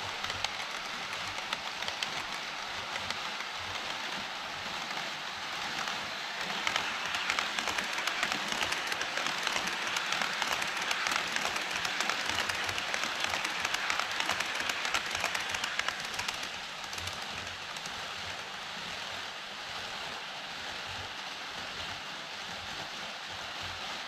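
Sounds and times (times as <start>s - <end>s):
model train wheels clattering: 0.0s - 18.5s
hiss: 0.0s - 24.0s.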